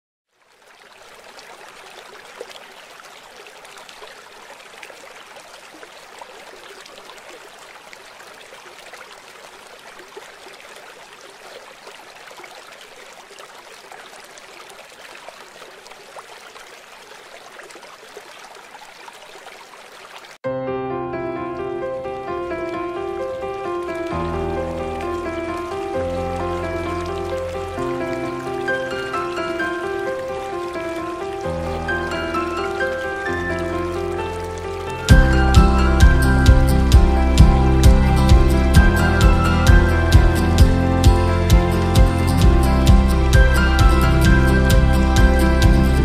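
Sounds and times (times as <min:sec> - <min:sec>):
river water trickling and lapping: 0:00.3 - 0:20.4, 0:21.1 - 0:46.0
small water splashes: 0:00.3 - 0:20.4, 0:22.7 - 0:35.1.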